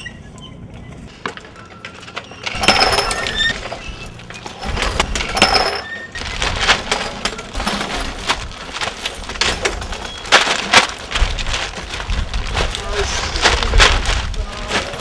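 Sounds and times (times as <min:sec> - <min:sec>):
plastic bags crinkling: 0:06.1 - 0:15.0.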